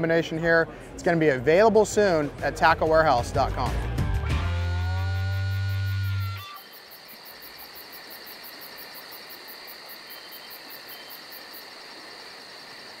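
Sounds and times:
high whine: 0:04.3 - 0:06.6
music note: 0:04.4 - 0:06.5
crickets chirping: 0:04.9 - 0:13.0.

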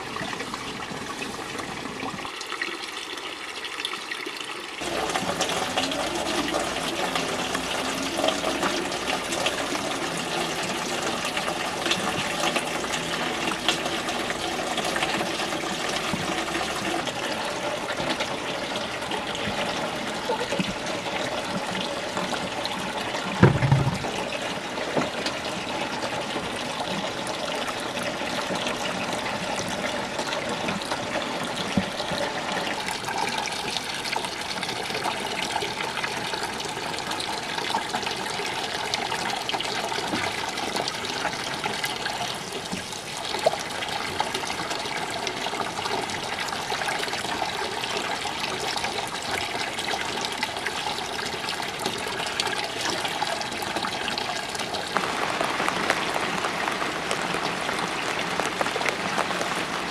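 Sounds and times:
water running steadily: 0:00.0 - 0:59.9
faint knock: 0:23.4 - 0:24.1.

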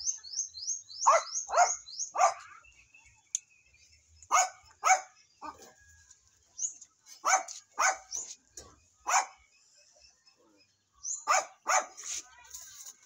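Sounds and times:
dog barking: 0:01.0 - 0:02.6, 0:04.3 - 0:05.7, 0:07.2 - 0:08.2, 0:09.0 - 0:09.4, 0:11.2 - 0:12.1.

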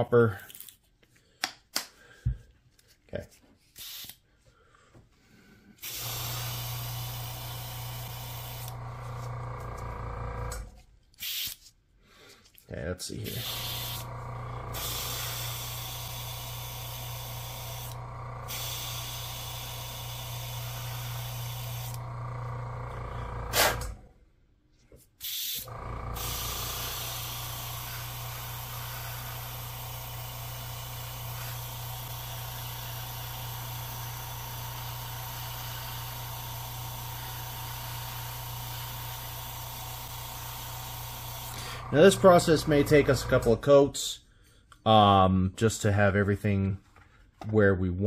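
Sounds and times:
airbrush spraying hiss: 0:26.2 - 0:33.6.

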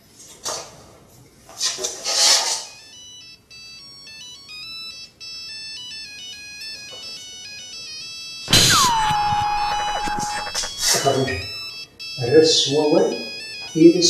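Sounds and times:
phone electronic ringtone: 0:02.6 - 0:14.0
burst of noise: 0:08.5 - 0:11.0.

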